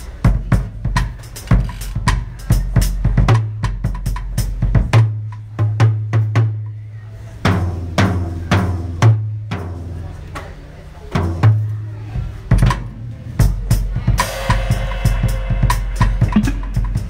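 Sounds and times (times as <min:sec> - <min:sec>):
bass drum: 0:00.3 - 0:06.6, 0:12.4 - 0:17.0
cymbal hits: 0:14.2 - 0:17.0
snare drum strokes: 0:14.2 - 0:17.0.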